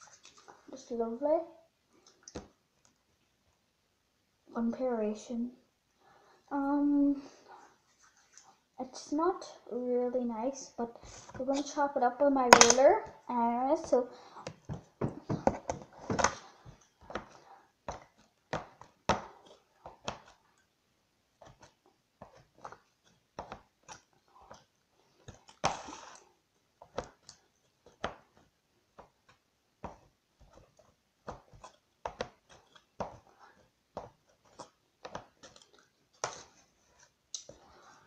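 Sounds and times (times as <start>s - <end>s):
rustling: 7.4s - 8.7s.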